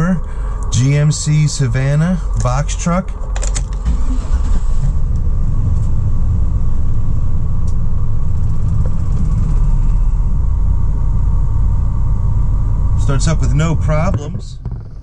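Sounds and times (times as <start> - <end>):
van engine starting and idling: 0.0 - 15.0.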